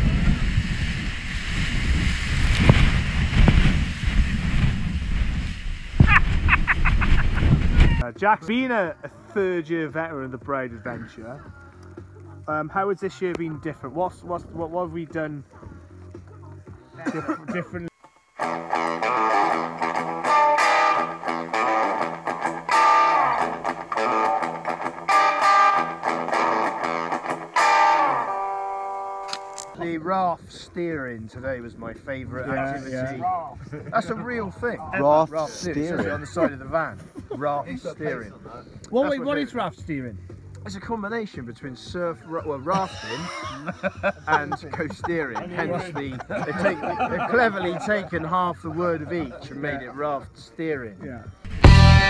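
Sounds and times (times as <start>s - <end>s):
wind buffeting the microphone: 0.0s - 8.0s
guitar background music: 18.4s - 30.1s, 32.2s - 50.0s, 50.9s - 52.0s.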